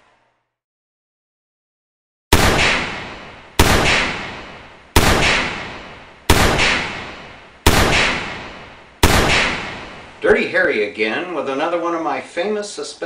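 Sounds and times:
gunshots with long echo: 2.3 - 10.2.

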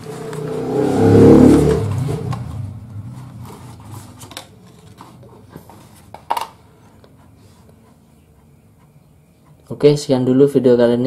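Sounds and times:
paper and card rustling: 3.0 - 7.9.

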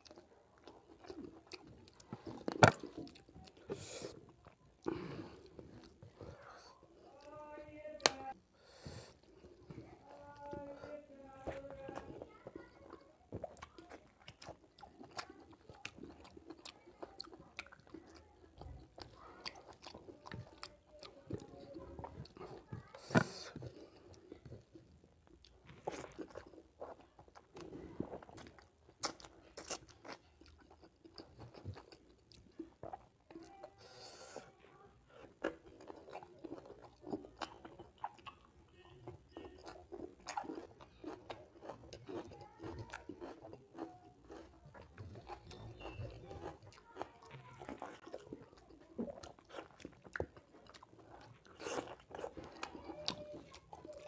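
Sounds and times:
person chewing: 0.0 - 54.0.

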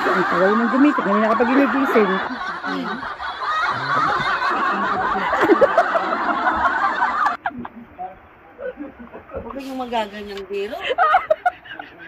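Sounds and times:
people snickering and laughing: 0.0 - 7.9, 10.7 - 12.0.

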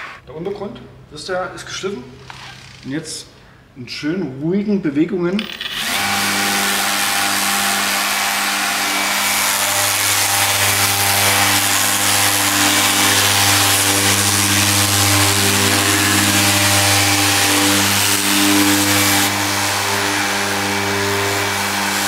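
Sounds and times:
orbital sander running: 5.7 - 22.0.

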